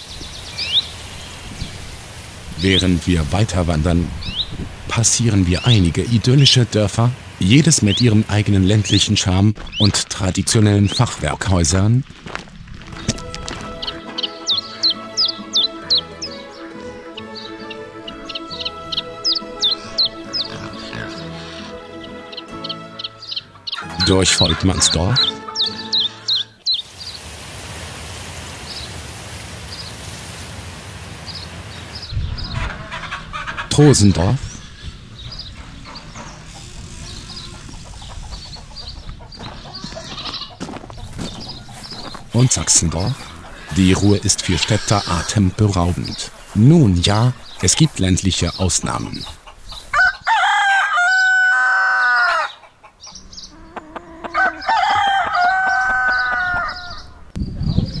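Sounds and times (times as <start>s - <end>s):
stream water rushing: 0.0s - 9.2s, 24.9s - 32.1s
rooster crowing: 49.8s - 52.6s, 53.5s - 57.2s.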